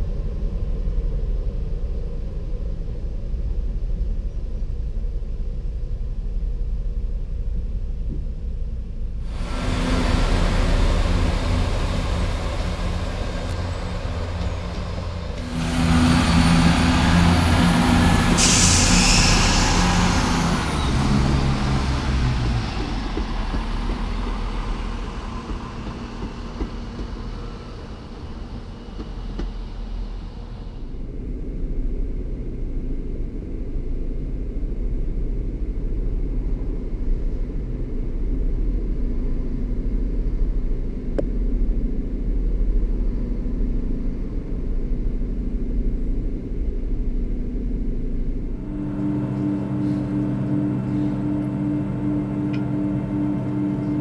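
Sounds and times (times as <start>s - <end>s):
diesel train engines throbbing: 0.0s - 54.0s
sharp air hiss: 18.1s - 20.6s.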